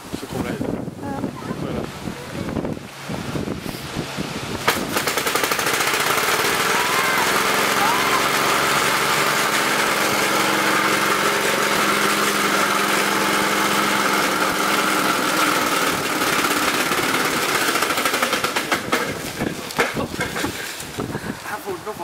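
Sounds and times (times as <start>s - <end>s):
single-cylinder engine running: 4.3s - 20.8s.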